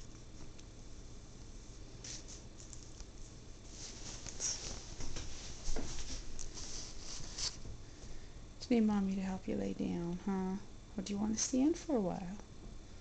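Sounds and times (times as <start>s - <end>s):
hand rustling dog fur: 0.3s - 7.8s.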